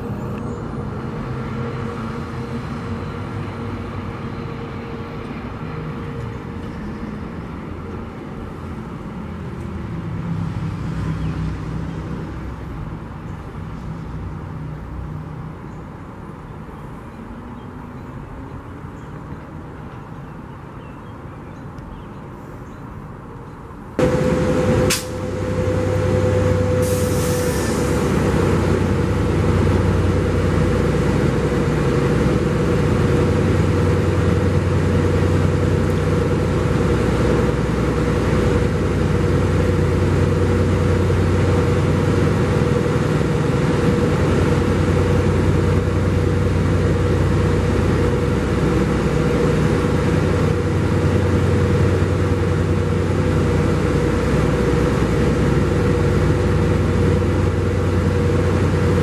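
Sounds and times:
diesel locomotive idling: 0:00.0 - 0:10.4, 0:23.8 - 0:59.0
air hissing: 0:24.0 - 0:29.1
steady whine: 0:24.0 - 0:59.0.

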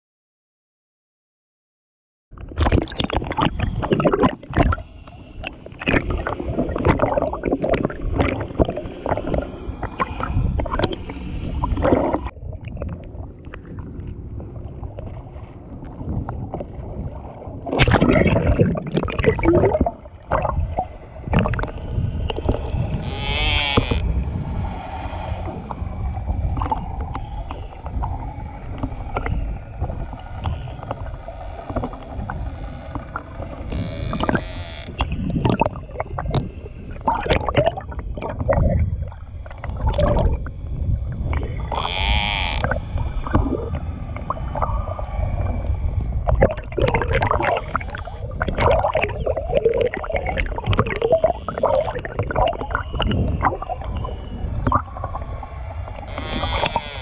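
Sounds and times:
underwater low rumble: 0:02.3 - 0:57.0
dolphin clicks and buzzing pulses: 0:02.4 - 0:57.0
dolphin high whistles: 0:33.5 - 0:35.2.

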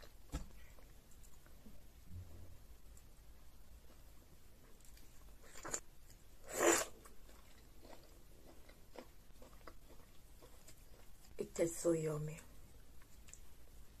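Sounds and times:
person chewing food: 0:03.8 - 0:11.4.

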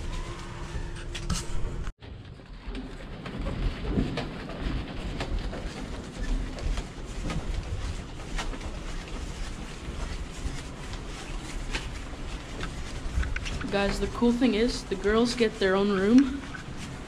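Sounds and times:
plastic wrap rustling: 0:03.0 - 0:17.0.

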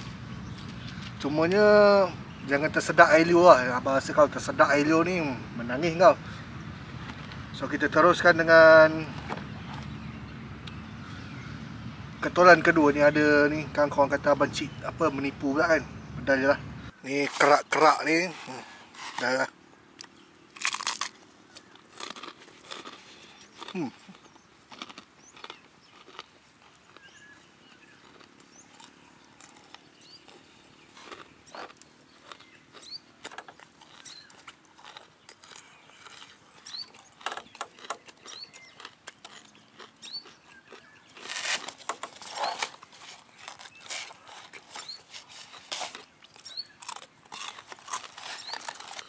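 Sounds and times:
birds chirping: 0:00.0 - 0:49.0
chewing crispy fried chicken: 0:20.0 - 0:49.0.

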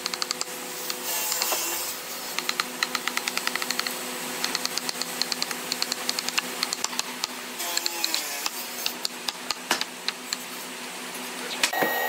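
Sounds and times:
steady hum: 0:00.0 - 0:12.0
chisel clicking strokes: 0:02.3 - 0:10.4.

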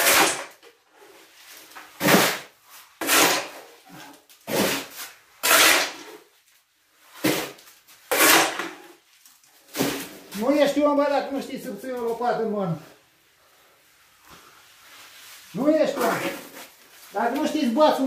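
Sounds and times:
shovel scraping concrete mix: 0:00.0 - 0:00.6, 0:02.0 - 0:06.2, 0:07.2 - 0:09.0, 0:09.7 - 0:10.2, 0:15.6 - 0:16.7.

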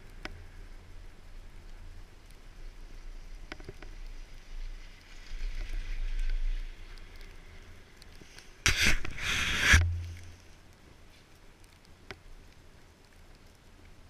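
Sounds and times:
wind rumbling on microphone: 0:00.0 - 0:11.1.

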